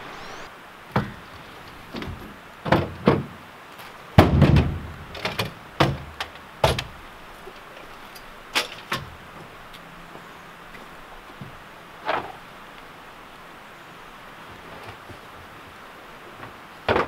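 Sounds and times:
tailgate dropping clunk: 1.9 - 3.4, 4.2 - 7.0
ladder knocks: 4.2 - 7.0.

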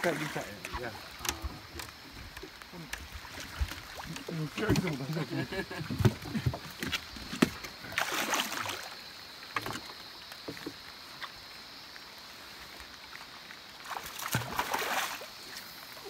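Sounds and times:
fish splashing in water: 5.8 - 10.0, 13.8 - 15.8.

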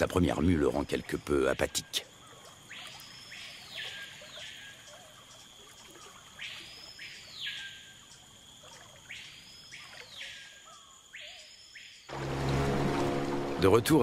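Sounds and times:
faint bird chirps: 0.9 - 12.1.

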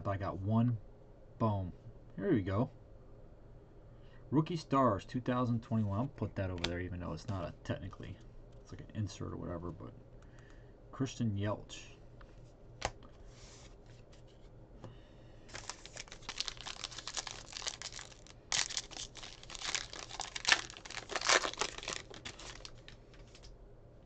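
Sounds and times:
wrapper tearing and crinkling: 15.5 - 23.5.

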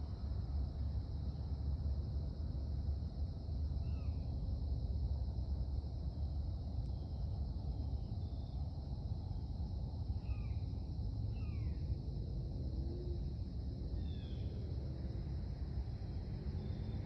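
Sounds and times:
low steady rumble: 0.0 - 17.0.

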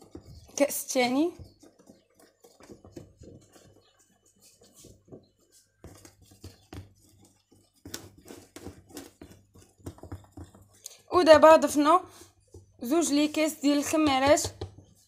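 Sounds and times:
spoon scraping plastic bowl: 0.0 - 15.0.

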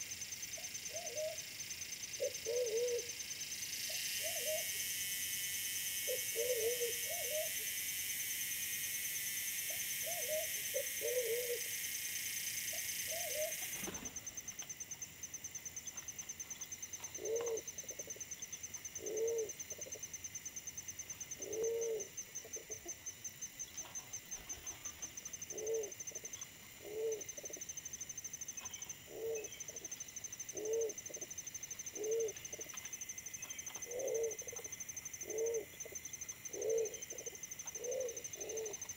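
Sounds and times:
pigeons cooing: 2.2 - 3.1, 6.1 - 7.5, 10.0 - 11.7, 13.1 - 14.2, 17.2 - 18.2, 19.0 - 20.0, 21.4 - 22.9, 25.5 - 26.0, 26.8 - 27.6, 29.1 - 29.9, 30.6 - 32.7, 33.8 - 34.6, 35.2 - 38.8.

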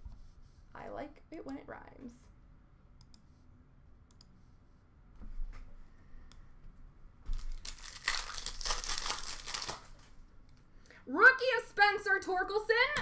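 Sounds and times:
handling of cards: 7.3 - 10.2
foil wrapper tearing and crinkling: 7.4 - 10.0.

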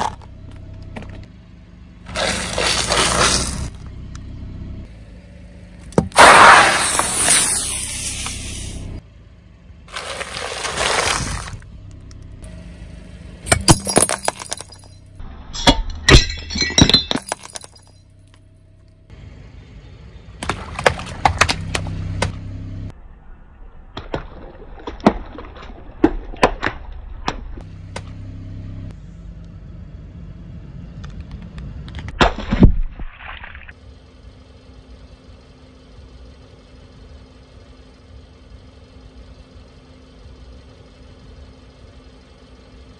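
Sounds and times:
cracks and crunches under tyre: 0.0 - 1.3, 2.1 - 4.3, 9.9 - 12.4, 20.4 - 22.4, 23.9 - 28.2
aerosol can bursting: 6.1 - 8.8
hiss of escaping spray: 6.2 - 8.8.

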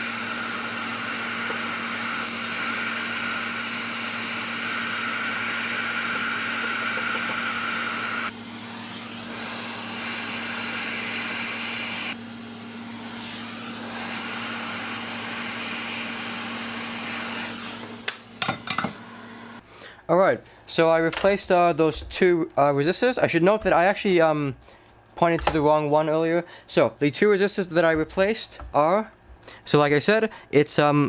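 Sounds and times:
hot air station blowing: 0.0 - 20.0.

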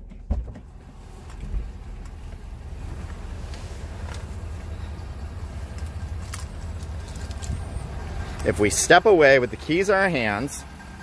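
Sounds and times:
knocks: 0.0 - 0.8
pickup engine idling: 0.0 - 11.0.

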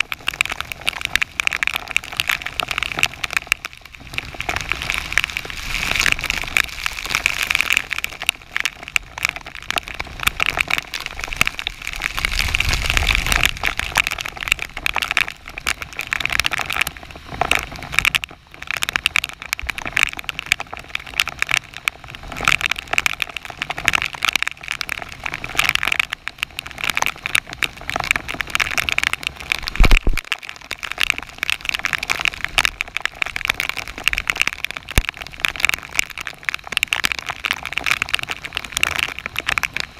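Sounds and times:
low gusty rumble: 0.0 - 22.4
heavy rain on water: 0.0 - 39.9.

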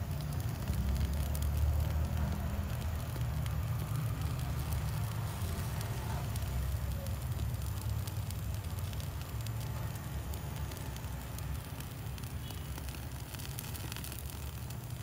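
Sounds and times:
foliage crackling and popping: 0.0 - 15.0
gas torch flame rumbling: 0.0 - 15.0.

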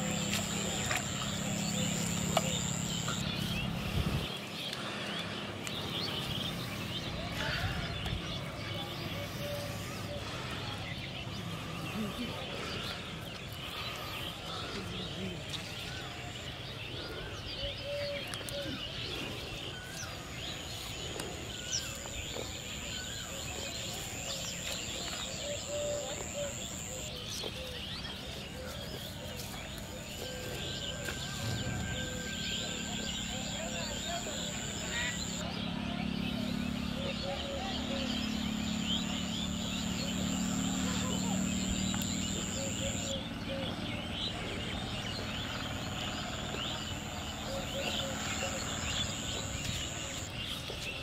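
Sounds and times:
steady high whine: 0.0 - 12.7
birds chirping and calling: 0.0 - 51.0.

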